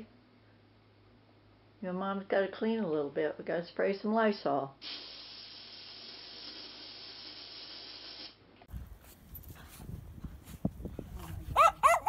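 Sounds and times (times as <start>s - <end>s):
dog growling: 11.5s - 12.0s.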